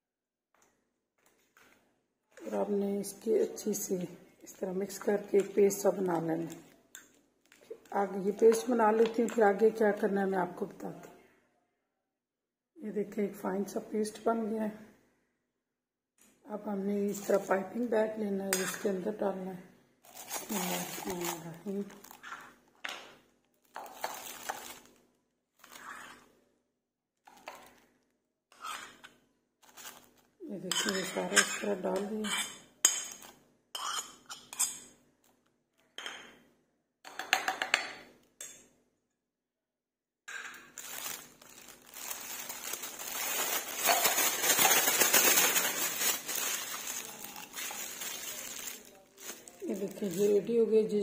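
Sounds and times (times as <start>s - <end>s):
plastic bag crinkling: 4.8s - 9.3s, 17.1s - 17.8s, 20.0s - 22.8s, 23.6s - 25.0s, 29.6s - 30.3s, 40.6s - 50.5s
metal spoon scraping a plate: 28.5s - 29.1s, 30.7s - 33.2s, 33.8s - 34.9s.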